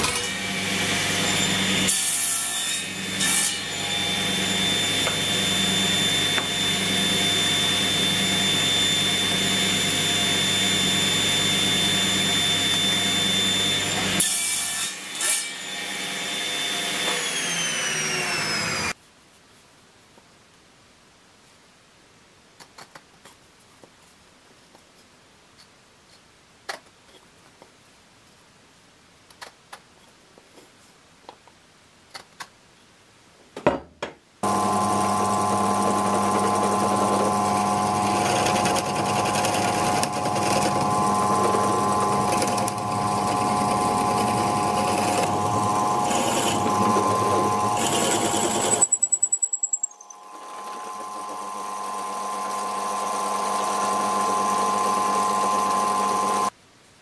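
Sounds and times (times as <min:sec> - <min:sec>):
drill press motor whining: 0:34.4 - 0:56.5.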